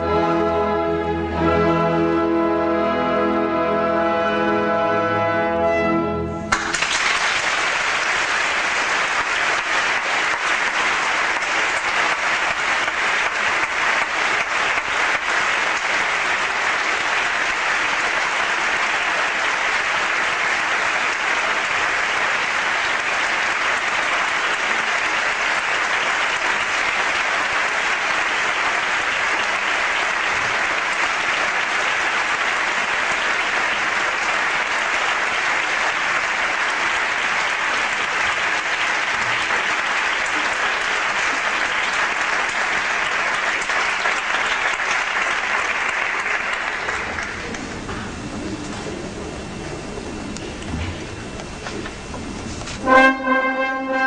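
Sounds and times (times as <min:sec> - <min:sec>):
orchestra chord: 0:00.0 - 0:06.6, 0:52.7 - 0:54.0
audience applauding: 0:06.5 - 0:52.9.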